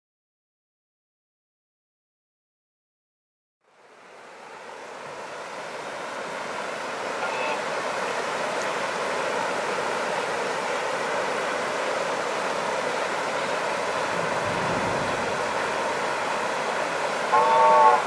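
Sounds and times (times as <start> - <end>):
rocky river rushing: 4.2 - 18.0.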